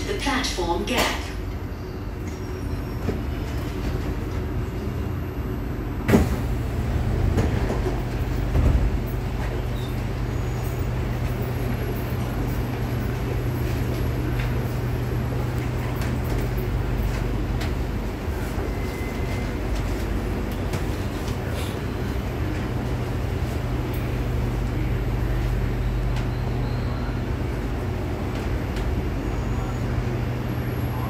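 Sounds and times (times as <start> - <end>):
low train equipment hum: 0.0 - 31.0
train doors unlocking clunk: 6.0 - 9.9.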